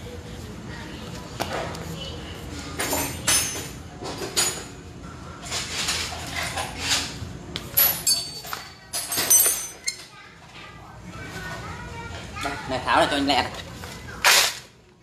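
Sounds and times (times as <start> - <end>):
metal tools clinking and clanking: 2.8 - 4.8, 5.4 - 10.1.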